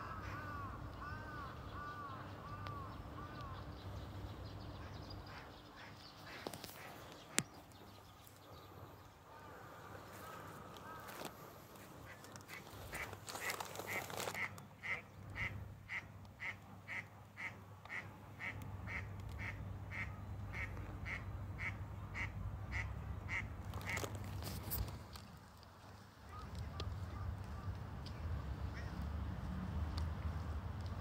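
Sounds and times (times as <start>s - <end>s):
brief rustle: 12.1s - 14.6s, 23.7s - 26.9s.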